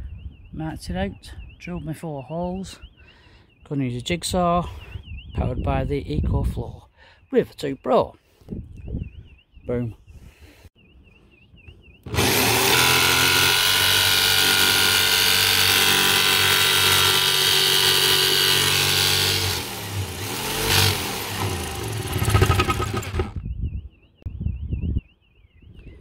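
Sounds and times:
jigsaw cutting sheet metal: 12.1 - 23.4.

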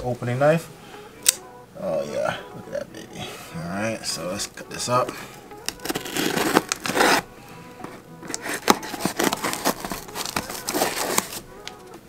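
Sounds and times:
background music: 0.0 - 12.0
knife slicing open a box: 5.6 - 7.3, 8.3 - 11.4.

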